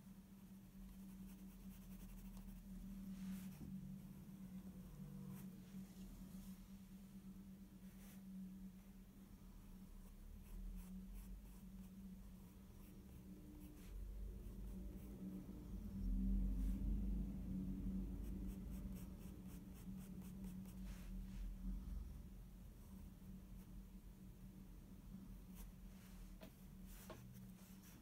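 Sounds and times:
steady low hum: 0:00.0 - 0:28.0
pencil scratching on paper: 0:00.9 - 0:02.7, 0:10.4 - 0:12.0, 0:27.0 - 0:28.0
low rumble: 0:12.0 - 0:26.7.

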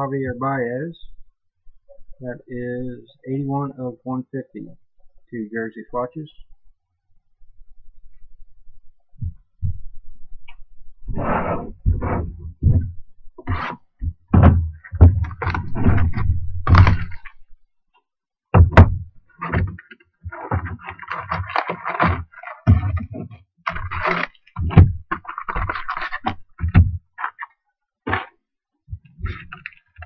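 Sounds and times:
thumps and knocks on cardboard box: 0:11.8 - 0:17.3, 0:18.6 - 0:27.4, 0:28.1 - 0:28.3.

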